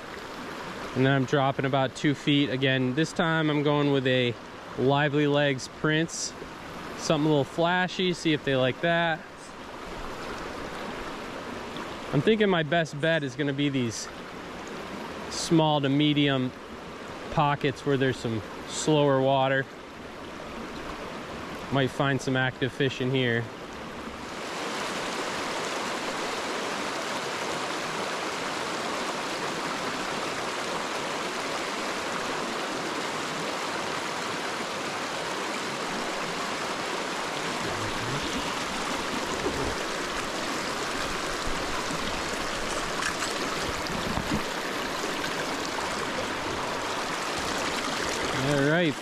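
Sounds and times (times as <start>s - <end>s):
creek rushing over stones: 23.9s - 49.0s.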